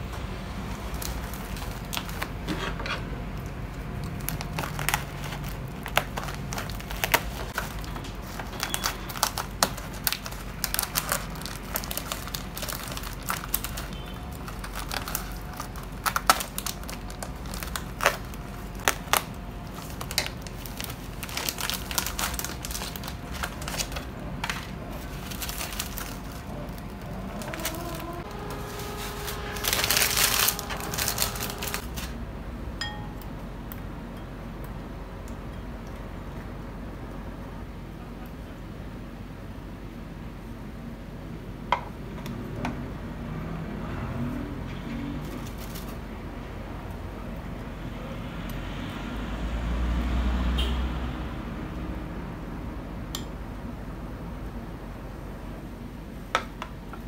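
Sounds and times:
plastic wrapping crinkling: 0.7 - 32.2, 45.0 - 46.1
scissors cutting plastic: 0.9 - 32.2
wrapper scrunched in hands: 4.0 - 32.2, 45.0 - 46.0.

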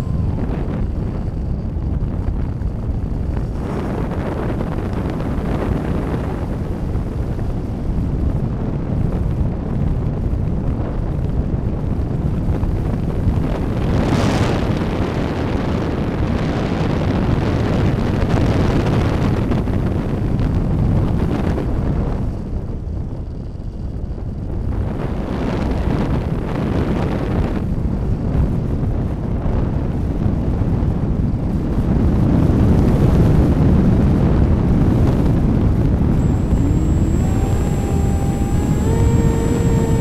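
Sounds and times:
wind rushing over microphone: 0.0 - 40.0.

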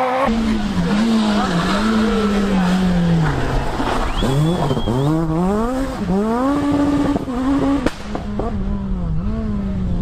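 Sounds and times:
rally car engine accelerating: 0.0 - 10.0
sharp crack: 7.8 - 8.4.

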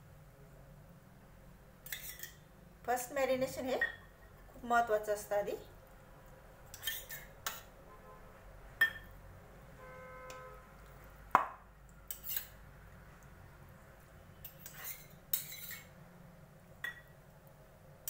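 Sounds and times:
spoon clinking against steel bowl: 8.8 - 9.1, 16.8 - 17.1.

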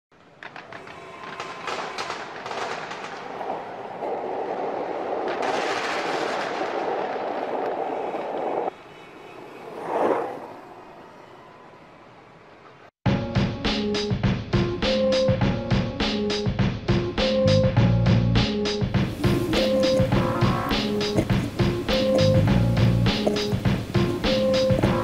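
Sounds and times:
crackling hits: 0.1 - 4.1, 5.1 - 8.7, 19.0 - 25.0
dense rushing noise: 19.0 - 24.3.

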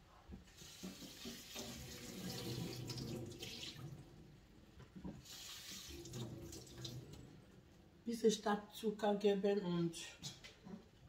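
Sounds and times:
tap water running into sink: 0.5 - 4.0, 5.0 - 7.3.

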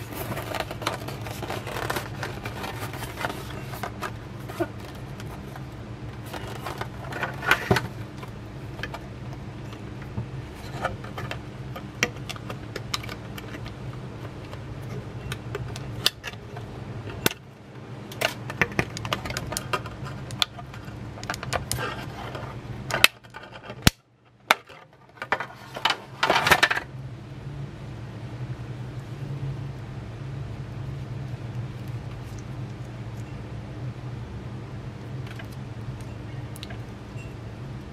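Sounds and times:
packaging clicks: 0.0 - 9.4
packaging rustling: 0.0 - 16.5
steady low hum: 0.0 - 37.9.

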